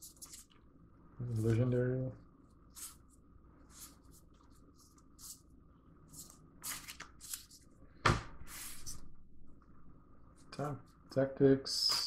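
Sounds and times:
cards sliding rustle: 2.7s - 5.4s, 6.1s - 7.7s.

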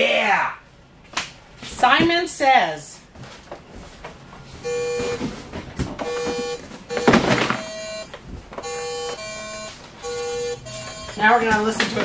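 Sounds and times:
electronic game beeps: 6.0s - 11.6s.

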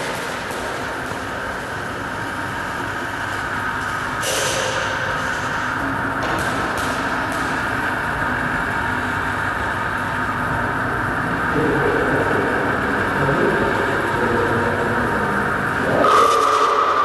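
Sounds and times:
rumbling hissing drone: 7.6s - 17.0s.

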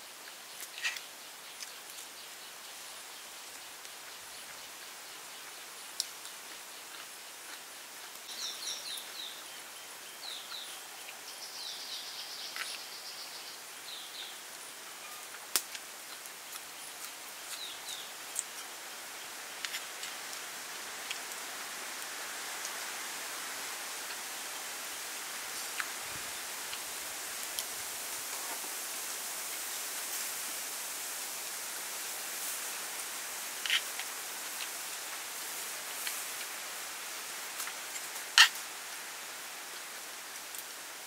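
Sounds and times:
steady hiss: 0.0s - 41.0s.

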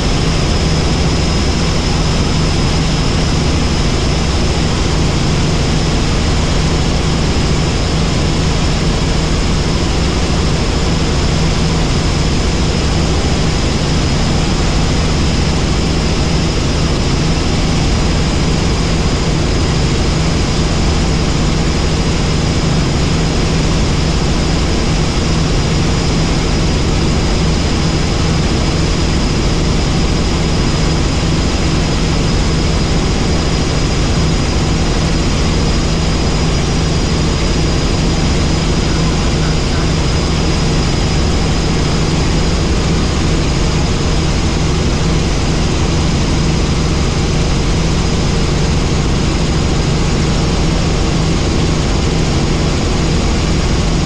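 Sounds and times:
helicopter rotor and engine: 0.0s - 54.0s
thin high whine: 31.0s - 44.8s.

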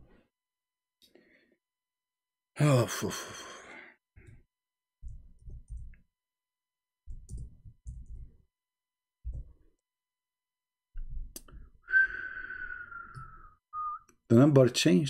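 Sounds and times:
computer keyboard typing: 5.0s - 6.0s, 7.1s - 8.4s.

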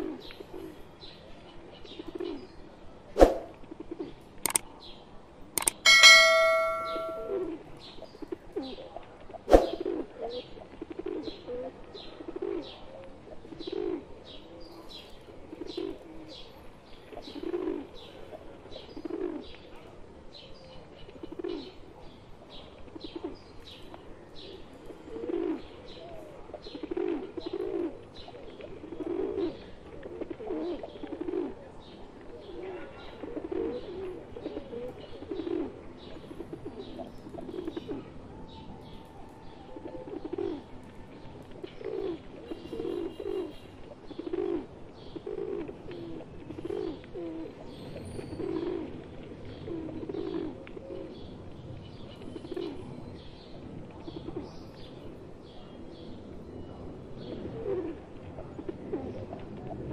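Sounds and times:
high bird chirps: 5.6s - 7.4s
pigeons cooing: 8.6s - 19.8s, 24.3s - 51.5s, 53.9s - 59.9s.

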